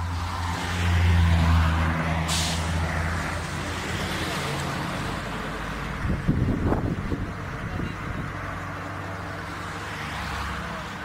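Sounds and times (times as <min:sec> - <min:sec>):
road noise: 0:00.0 - 0:11.0
vehicle engine drone: 0:00.0 - 0:11.0
brief hiss: 0:02.3 - 0:02.8.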